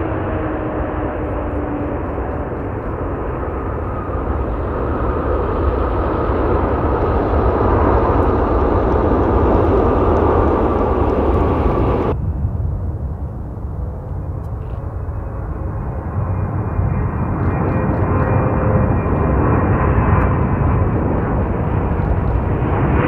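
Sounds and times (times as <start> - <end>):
jet engines roaring on landing: 0.0 - 23.0.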